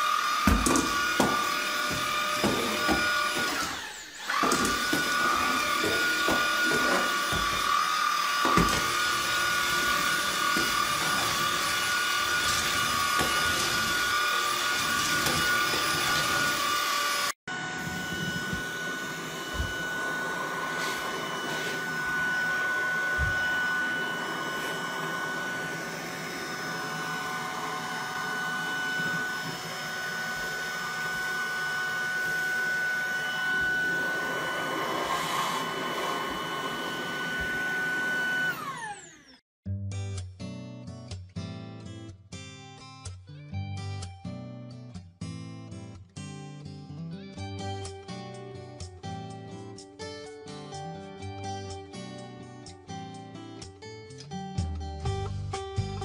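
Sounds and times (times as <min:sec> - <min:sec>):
vacuum motor whining: 0:00.0 - 0:39.4.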